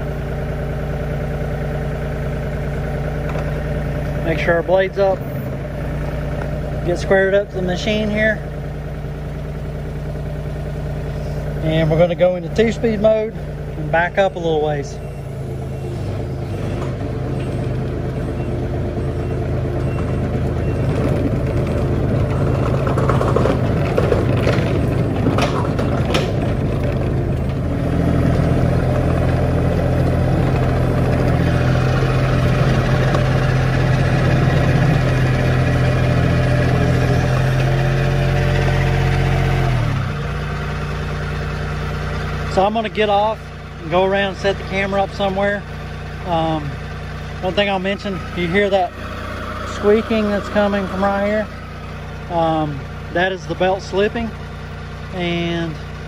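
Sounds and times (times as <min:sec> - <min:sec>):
diesel engine running: 0:00.0 - 0:56.0
drive belt squeaking: 0:14.2 - 0:27.7.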